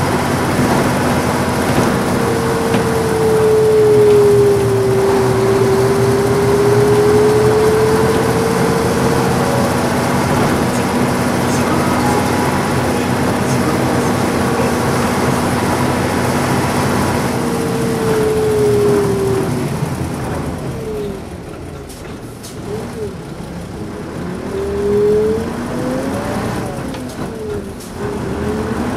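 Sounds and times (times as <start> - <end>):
whine rising in pitch: 0.0 - 21.2
bus diesel engine running: 0.0 - 28.9.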